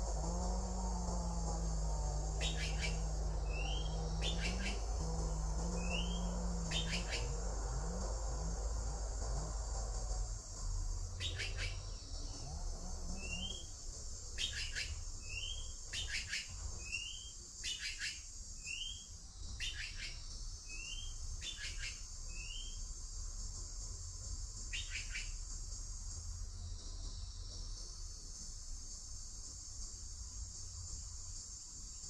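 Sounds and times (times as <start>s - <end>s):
high-pitched insect drone: 0.0s - 32.0s
bird rising chirp: 0.7s - 8.7s, 11.2s - 13.8s, 14.4s - 22.9s, 24.7s - 25.3s
short raspy calls: 2.3s - 8.9s, 11.2s - 12.4s, 13.0s - 13.8s, 14.4s - 19.0s.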